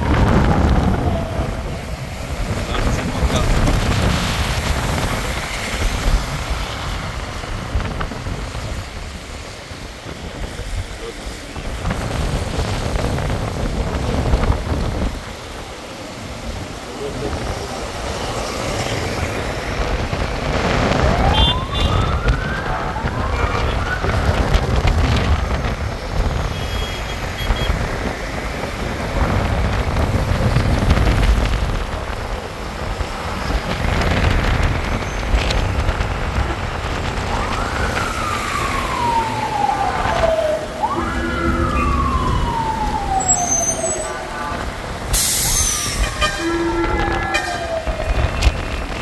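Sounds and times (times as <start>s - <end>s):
emergency siren wailing: 0.0s - 11.0s, 11.9s - 30.7s, 35.4s - 49.0s
traffic on wet street: 0.0s - 49.0s
tyres running through water: 0.0s - 49.0s.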